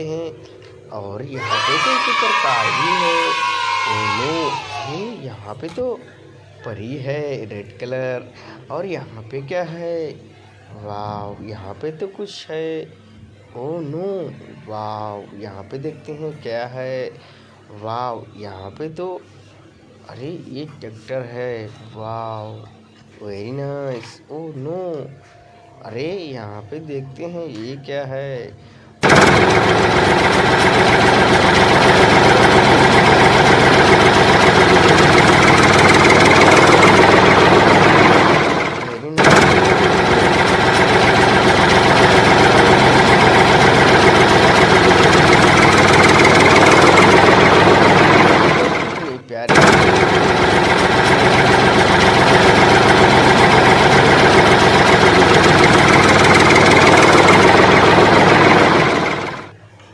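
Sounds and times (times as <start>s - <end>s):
heavy engine running: 29.0s - 59.6s.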